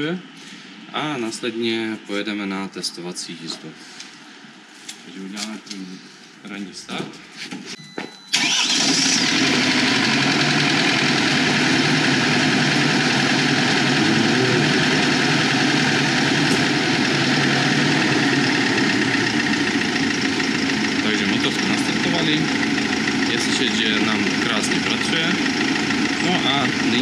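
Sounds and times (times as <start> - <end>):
diesel engine starting and idling: 8.3 - 27.0.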